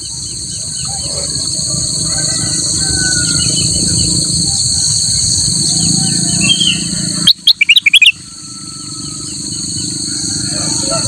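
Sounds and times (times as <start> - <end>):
high insect drone: 0.0 - 11.0
faint bird chirps: 6.2 - 9.6
bird singing short notes: 6.5 - 8.2.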